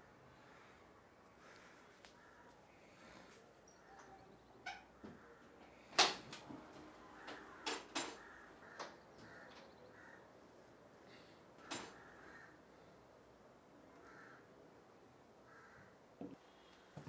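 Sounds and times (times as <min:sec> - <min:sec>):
crows cawing: 0:01.4 - 0:05.6, 0:07.0 - 0:10.5, 0:11.1 - 0:12.9, 0:13.9 - 0:14.6, 0:15.4 - 0:16.7.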